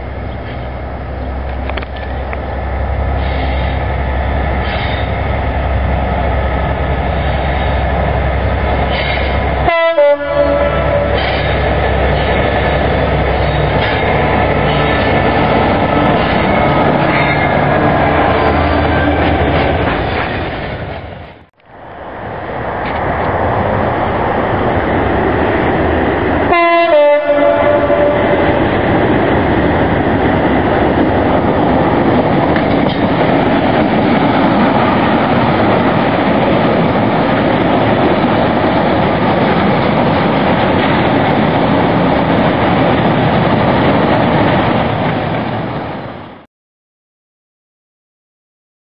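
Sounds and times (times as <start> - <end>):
diesel locomotive rumble: 0.0 - 46.4
train horn blast: 9.6 - 11.4, 26.5 - 28.5.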